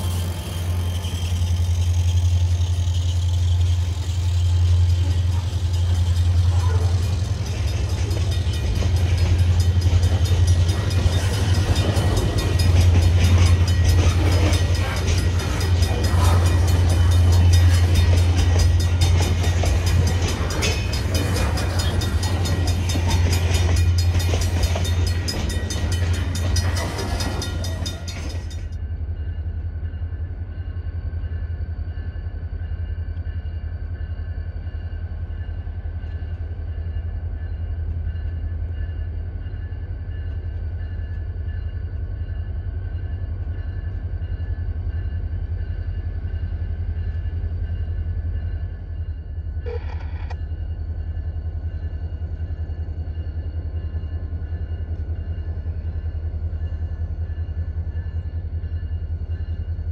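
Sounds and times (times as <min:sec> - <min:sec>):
diesel locomotives idling rumble: 0:00.0 - 0:28.7
freight train wheels clattering: 0:00.0 - 0:28.8.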